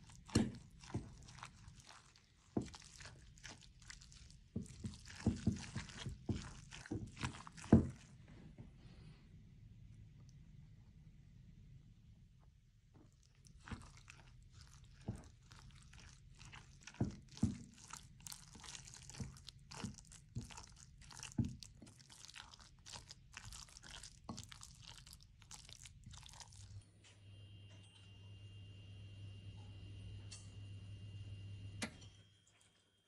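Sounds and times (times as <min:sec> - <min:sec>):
fork mixing wet crunchy food: 0:00.0 - 0:08.2, 0:13.0 - 0:26.8
low hum with high whine: 0:07.8 - 0:16.5, 0:26.6 - 0:33.0.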